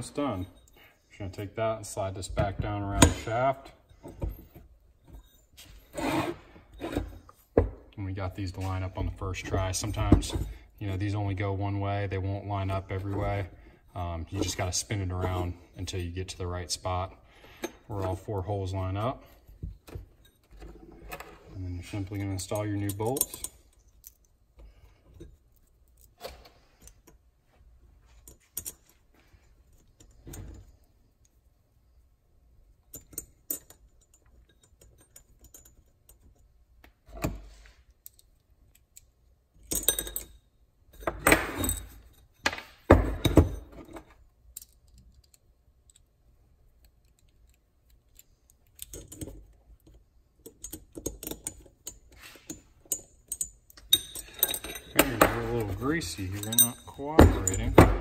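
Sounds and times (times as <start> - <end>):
bolts clinking against metal: 14.2 - 27.3, 28.1 - 29.1, 32.8 - 58.0
bolts rattling: 46.8 - 58.0.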